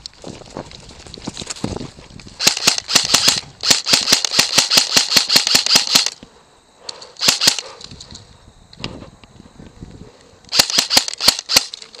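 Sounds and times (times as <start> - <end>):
airsoft gun firing bursts: 2.4 - 6.2, 7.2 - 7.6, 10.5 - 11.8.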